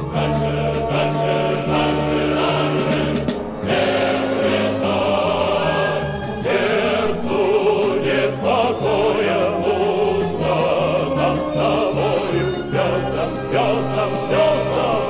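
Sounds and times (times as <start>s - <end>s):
song with choir-like voices: 0.0s - 15.0s
steady bass accompaniment: 0.0s - 15.0s.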